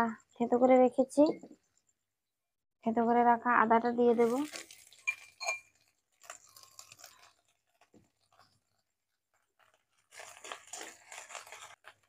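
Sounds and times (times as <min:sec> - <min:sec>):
scraping from a metal cup: 0:04.3 - 0:08.8
utensils and jars tapping: 0:04.9 - 0:05.8.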